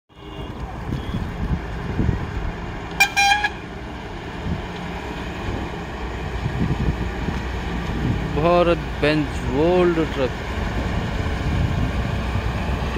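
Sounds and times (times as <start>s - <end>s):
vehicle engines rumbling: 0.1s - 12.9s
horn blast: 3.0s - 3.7s.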